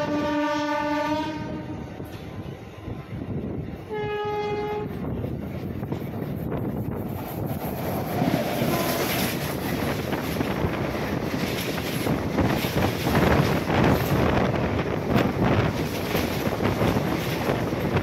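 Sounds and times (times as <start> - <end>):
wind buffeting microphone: 0.0 - 18.0
electric train running: 4.7 - 18.0.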